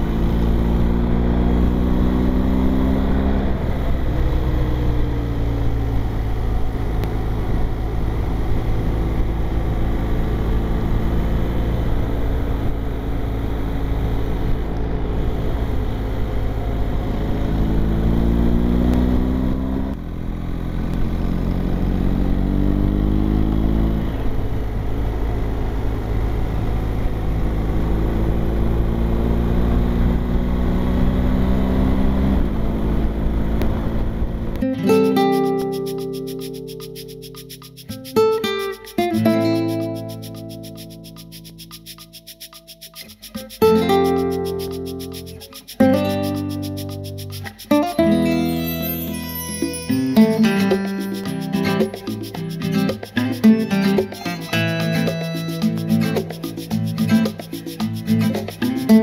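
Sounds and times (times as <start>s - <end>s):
motorcycle engine accelerating: 0.0s - 49.1s
wind rumble on microphone: 20.9s - 34.6s.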